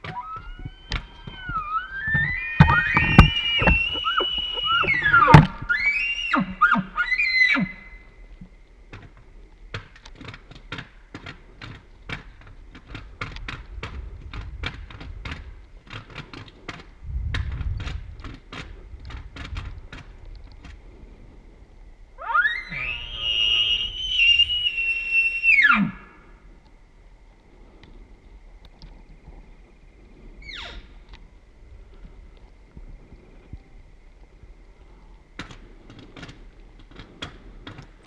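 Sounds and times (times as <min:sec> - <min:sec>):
sharp clicks: 0:00.0 - 0:05.6
elk bugling: 0:00.0 - 0:08.0, 0:22.2 - 0:26.3.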